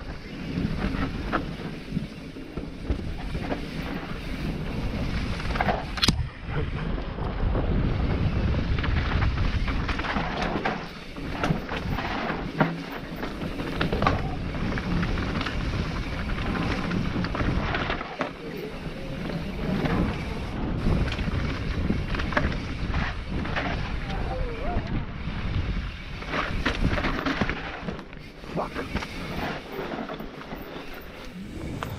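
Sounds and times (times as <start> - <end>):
wind buffeting microphone: 0.0 - 12.6, 13.3 - 27.5, 30.6 - 31.9
bike rattling and clattering: 0.0 - 31.9
tyres rolling over dirt: 7.9 - 31.9.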